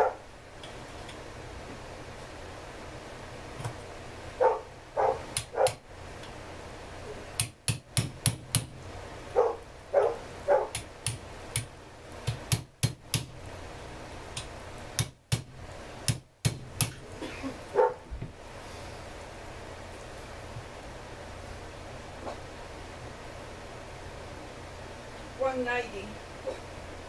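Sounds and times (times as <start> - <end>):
dog barking: 0.0 - 0.3, 4.4 - 5.8, 9.3 - 10.8, 17.7 - 18.1.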